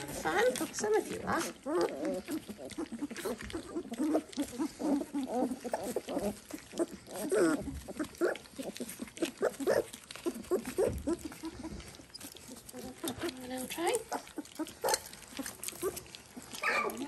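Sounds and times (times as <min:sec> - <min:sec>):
puppies squeaking and grunting: 0:00.0 - 0:17.0.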